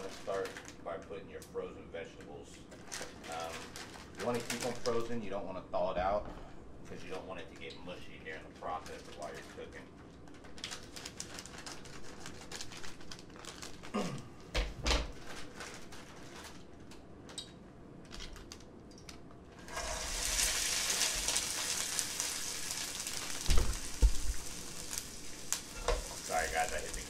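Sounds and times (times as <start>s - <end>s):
vegetables sizzling in oil: 19.6s - 27.0s
camera knocked thumps: 23.5s - 24.3s.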